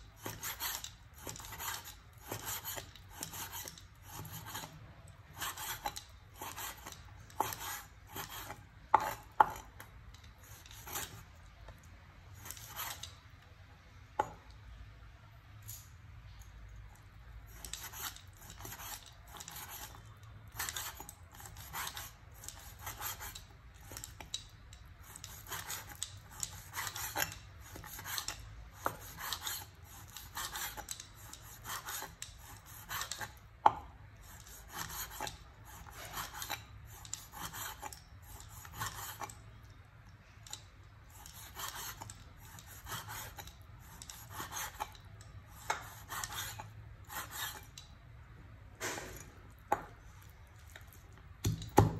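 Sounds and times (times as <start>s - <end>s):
cleaver slicing meat on wood: 25.0s - 39.3s.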